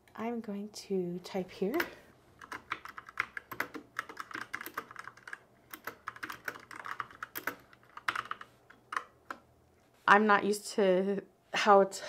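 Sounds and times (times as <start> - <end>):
mechanical keyboard typing: 1.6 - 9.4.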